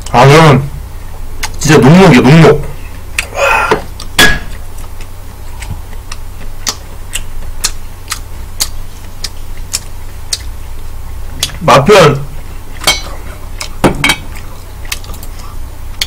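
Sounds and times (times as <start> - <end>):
low steady hum: 0.0 - 16.0
wet chewing clicks: 1.4 - 1.6, 3.9 - 11.6, 13.2 - 16.0.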